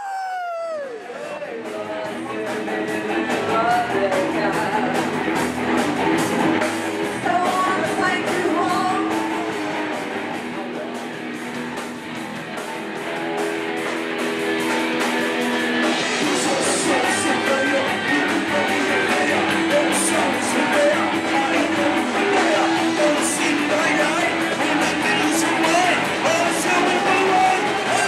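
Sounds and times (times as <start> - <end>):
person shouting: 0.0 - 1.1
live rock band: 0.0 - 28.0.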